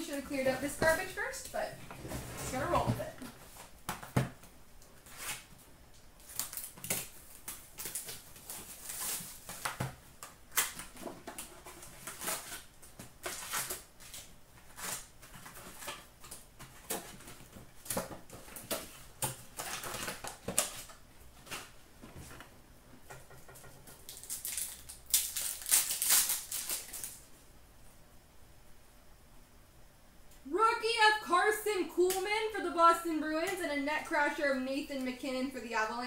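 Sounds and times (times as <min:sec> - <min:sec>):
packaging crinkling and rustling: 0:06.2 - 0:22.5, 0:23.7 - 0:27.3.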